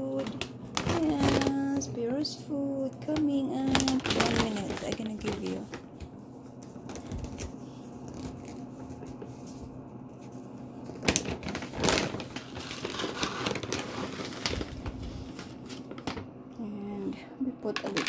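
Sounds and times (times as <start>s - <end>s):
dog food bag rustling: 0.2s - 1.9s, 3.6s - 5.9s, 10.8s - 16.3s.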